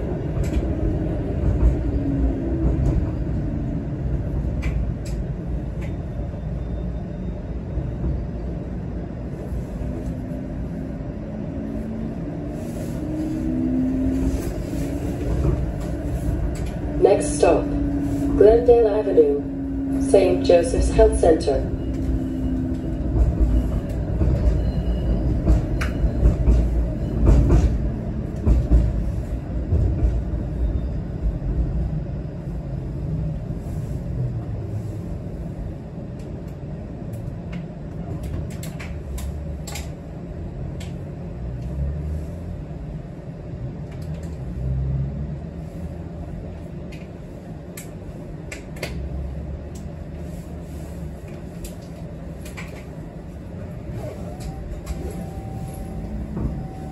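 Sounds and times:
steady tram hum: 0.0 - 56.9
tram rumbling on rails: 0.0 - 56.9.

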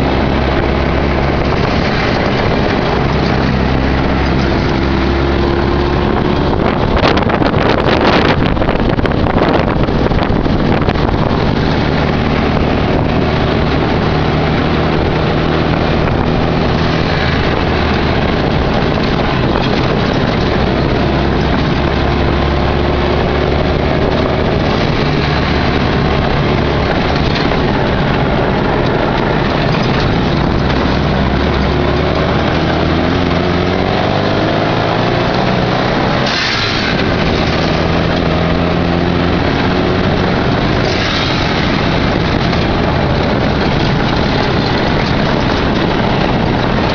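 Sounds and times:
buggy engine revving: 0.0 - 46.9
road noise rushing: 0.0 - 46.9.

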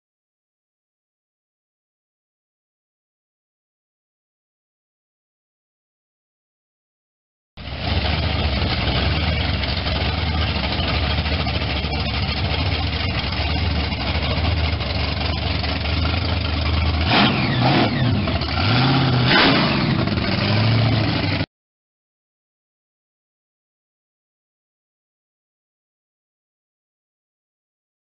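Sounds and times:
car engine running and revving: 7.6 - 21.4.

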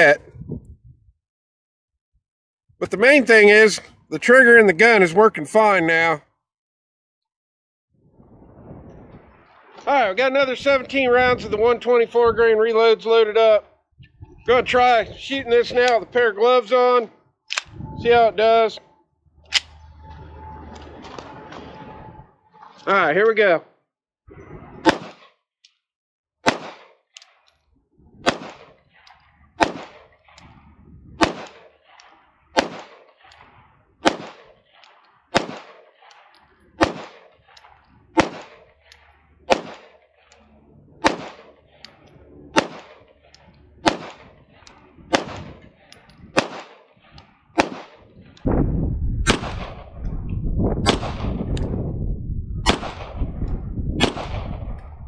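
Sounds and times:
low rumble: 8.1 - 9.8, 17.6 - 22.7, 27.8 - 31.4, 40.2 - 46.4, 47.0 - 55.0
pistol shots: 24.8 - 25.3, 26.4 - 27.0, 28.2 - 29.0, 29.6 - 30.2, 31.2 - 40.4, 41.0 - 41.8, 42.6 - 43.2, 43.8 - 48.1, 49.2 - 49.9, 50.8 - 51.4, 52.6 - 53.2, 54.0 - 54.9.

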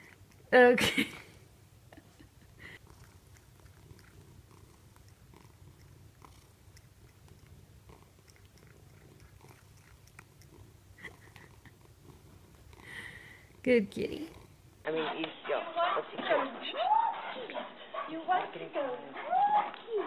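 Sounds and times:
cat purring: 0.0 - 14.9.

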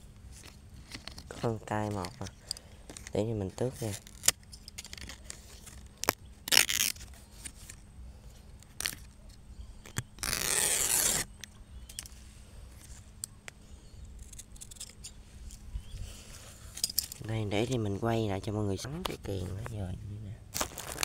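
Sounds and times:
leaf tearing: 3.0 - 7.8, 8.6 - 9.2, 9.9 - 11.4, 20.5 - 21.0.

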